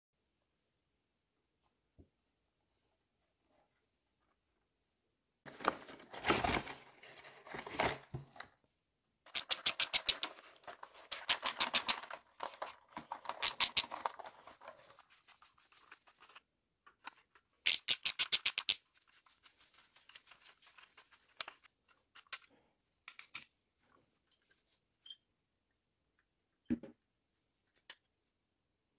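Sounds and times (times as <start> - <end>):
ratcheting screwdriver clicking: 9.3 - 10.4, 11.1 - 12.1, 17.7 - 18.8.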